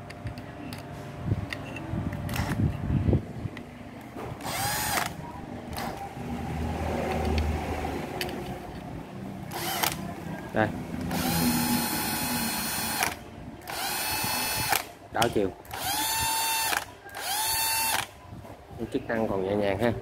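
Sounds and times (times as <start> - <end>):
cordless drill whirring: 4.4 - 6.0, 9.5 - 10.0, 11.1 - 14.9, 15.7 - 18.1.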